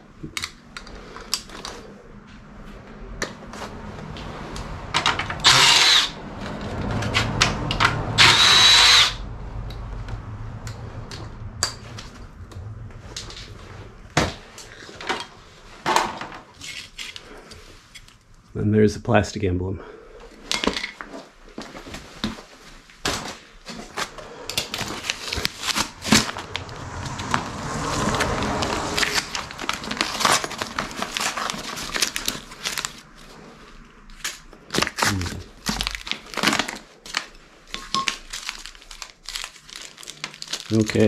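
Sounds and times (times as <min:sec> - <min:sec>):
plastic bag crinkling: 0:23.7 - 0:26.7, 0:28.7 - 0:33.6, 0:34.2 - 0:41.0.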